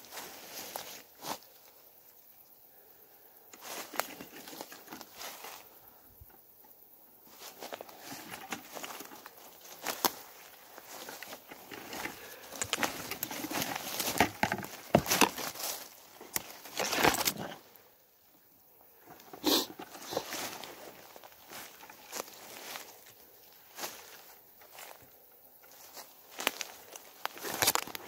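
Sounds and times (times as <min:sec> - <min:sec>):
footsteps crunching through dry leaves: 0:00.0 - 0:01.7, 0:07.2 - 0:17.8, 0:19.0 - 0:28.0.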